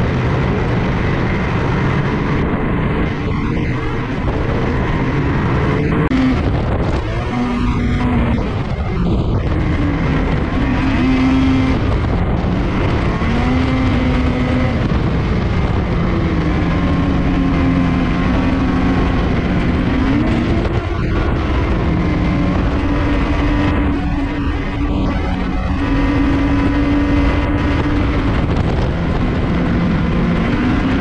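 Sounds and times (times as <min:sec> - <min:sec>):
vehicle engine and road noise: 0:00.0 - 0:31.0.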